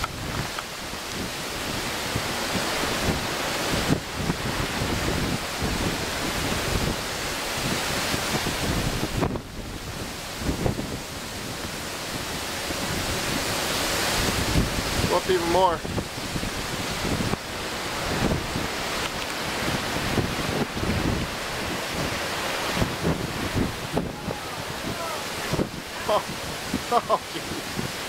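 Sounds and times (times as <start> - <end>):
sea breaking along ship hull: 0.0 - 28.0
wind buffeting microphone: 0.0 - 28.0.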